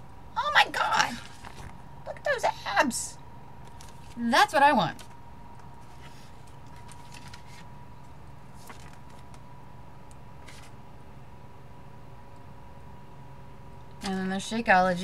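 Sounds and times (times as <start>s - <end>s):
faint electrical hum: 0.0s - 15.0s
paper rustling: 1.1s - 1.8s, 3.6s - 4.2s, 5.8s - 7.7s, 8.5s - 9.4s, 10.4s - 10.8s.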